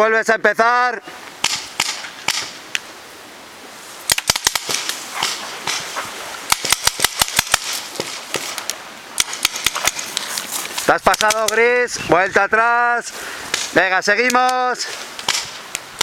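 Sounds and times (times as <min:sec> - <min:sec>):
paintball markers firing: 0:04.1 - 0:11.6, 0:15.2 - 0:16.0.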